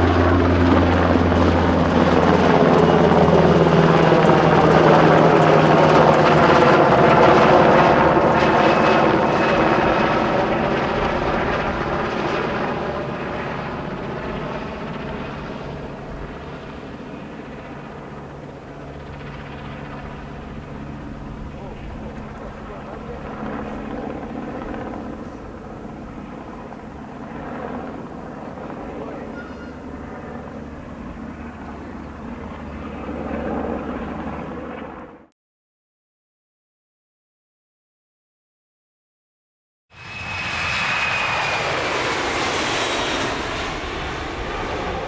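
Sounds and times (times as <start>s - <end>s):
helicopter rotor chop: 0.0s - 35.2s, 40.0s - 45.0s
aircraft engine roar with whine: 0.0s - 35.3s, 39.9s - 45.0s
turbine engines: 40.0s - 45.0s.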